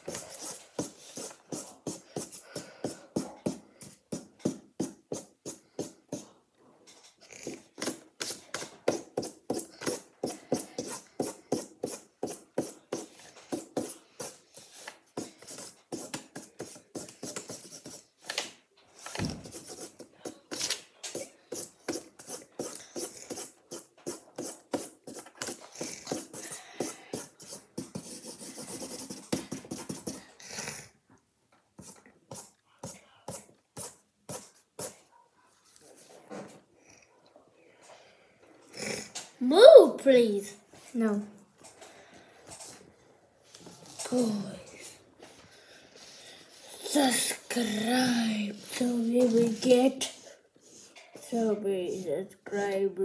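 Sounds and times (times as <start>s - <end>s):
marker scribbling on paper: 0.0s - 6.3s, 7.3s - 30.4s, 31.8s - 35.1s.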